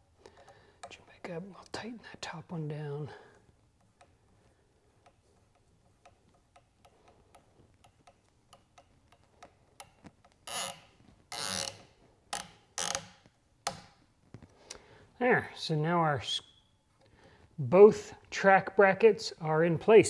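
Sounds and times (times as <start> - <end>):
faint screw ticks: 0.2 - 1.0, 5.0 - 10.8
screw scraping squeaks: 10.4 - 13.2.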